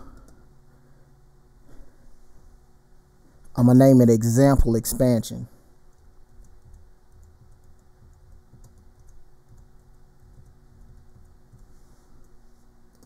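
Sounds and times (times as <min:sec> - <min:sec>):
keyboard typing: 0:05.9 - 0:13.0.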